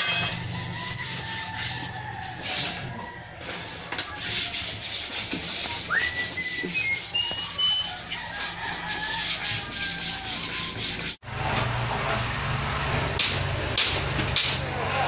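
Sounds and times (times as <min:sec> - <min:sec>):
paper scraping over slate: 0:03.4 - 0:11.2
high whistled notes: 0:05.8 - 0:08.1.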